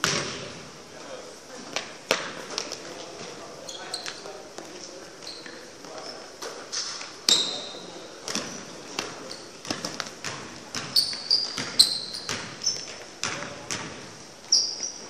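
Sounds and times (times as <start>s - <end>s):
sneaker squeaks: 3.6s - 4.3s, 5.2s - 15.0s
basketball bouncing on hardwood floor: 9.6s - 14.0s.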